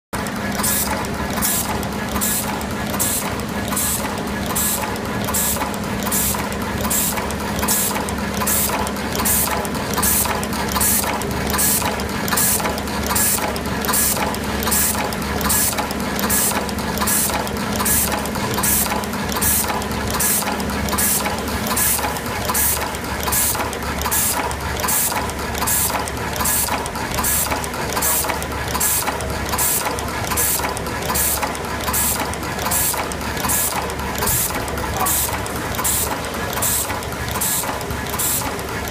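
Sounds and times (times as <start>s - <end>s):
mechanical clatter: 0.2s - 38.9s.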